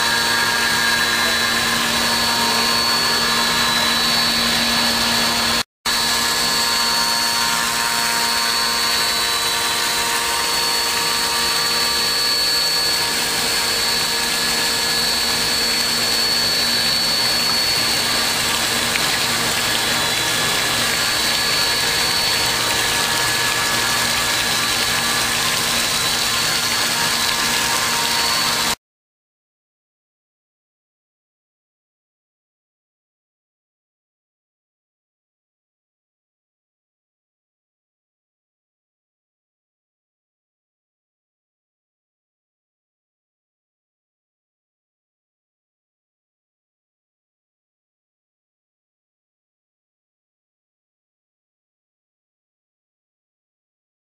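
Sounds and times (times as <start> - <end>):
milling machine spindle whine: 0.0 - 28.8.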